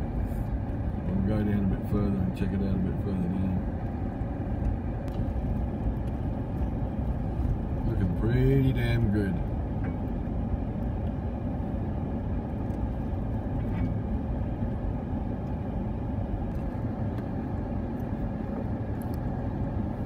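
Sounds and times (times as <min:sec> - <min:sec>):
low rumble of engine and tyres: 0:00.0 - 0:20.0.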